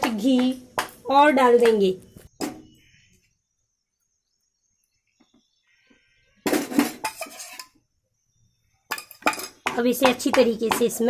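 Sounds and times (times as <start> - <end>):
metal spoon scraping a pan: 6.4 - 7.8, 8.9 - 11.0.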